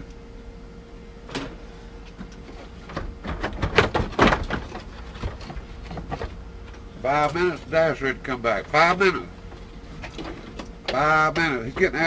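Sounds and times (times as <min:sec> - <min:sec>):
faint steady hum: 0:00.0 - 0:12.0
plastic dashboard knocks and rattles: 0:02.8 - 0:06.3.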